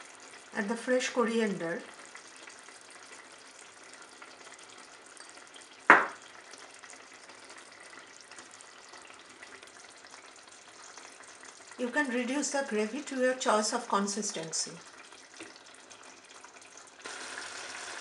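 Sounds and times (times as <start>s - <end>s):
curry simmering hiss: 0.0s - 18.0s
sharp loud knock: 5.9s - 6.2s.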